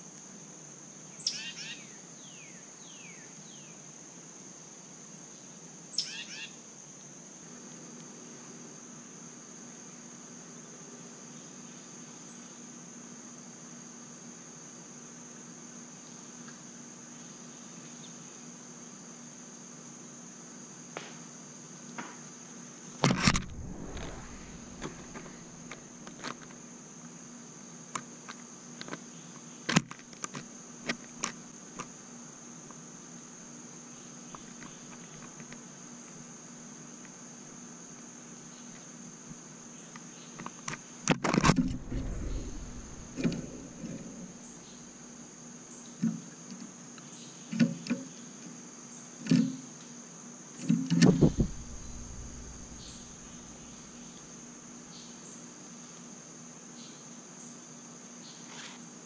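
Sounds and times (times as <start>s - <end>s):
loud bumps and knocks: 51.0s - 53.4s.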